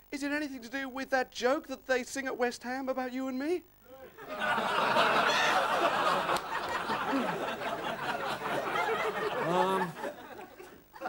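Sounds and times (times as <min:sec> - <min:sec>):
audience laughing: 0:04.2 - 0:11.0.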